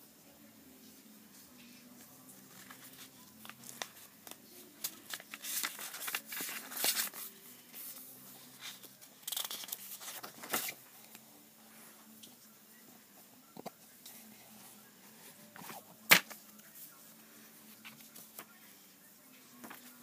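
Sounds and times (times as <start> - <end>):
book pages rustling: 2.0 - 11.2, 15.3 - 16.8, 19.6 - 20.0.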